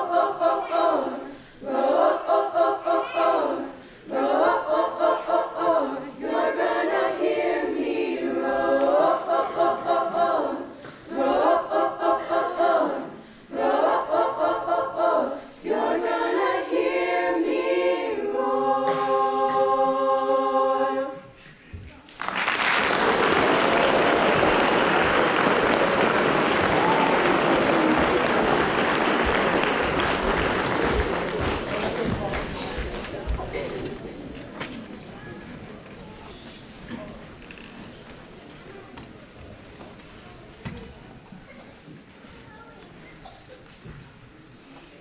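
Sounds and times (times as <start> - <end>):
women's choir singing a cappella: 0.0 - 21.4.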